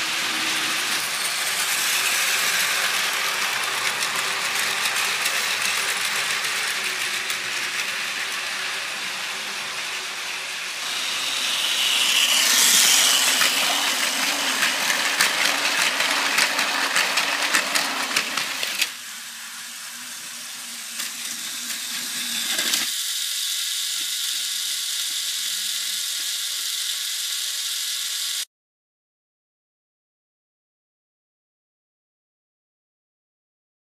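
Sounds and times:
toy train motor whirring: 0.0 - 28.5
wheels clicking over track joints: 0.2 - 10.1, 11.2 - 18.9.

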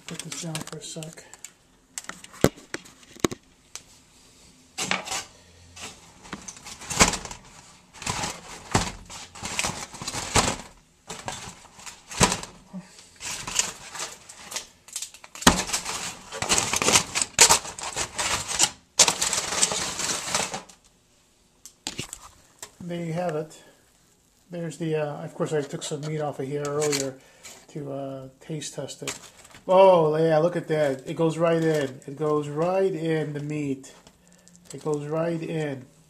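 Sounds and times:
foil roasting pan clattering: 4.8 - 20.8.

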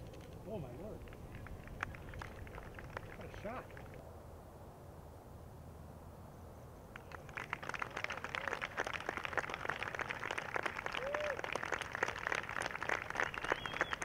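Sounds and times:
crowd clapping and cheering: 1.2 - 3.9, 6.9 - 14.0.

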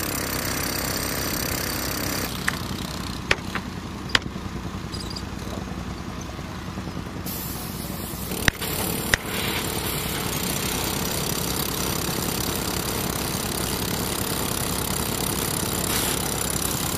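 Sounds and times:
hammer drill boring into concrete: 8.3 - 16.9.

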